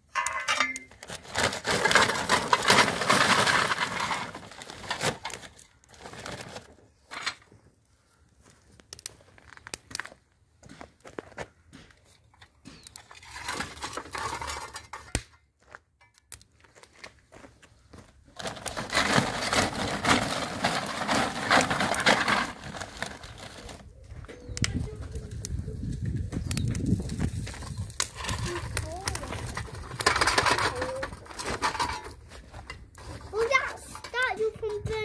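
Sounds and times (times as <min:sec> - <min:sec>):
plastic sack rustling: 0:00.5 - 0:06.8, 0:18.4 - 0:23.9.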